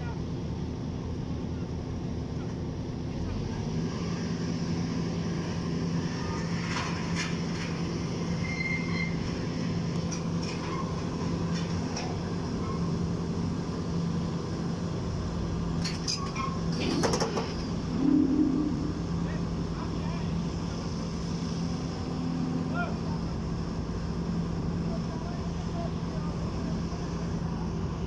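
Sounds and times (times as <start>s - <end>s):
excavator diesel engine running: 0.2s - 28.0s
brief loud tone: 17.9s - 19.3s.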